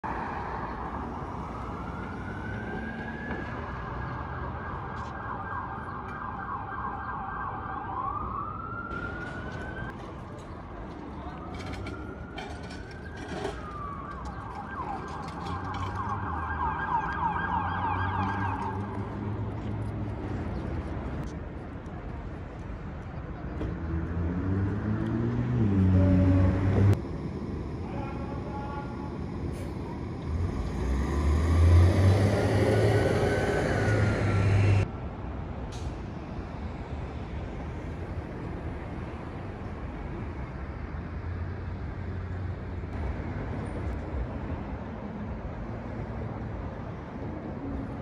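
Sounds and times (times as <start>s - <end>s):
emergency vehicle siren: 0.0s - 19.4s, 28.0s - 34.9s
low traffic rumble: 0.0s - 48.0s
heavy vehicle engine passing: 29.3s - 34.9s.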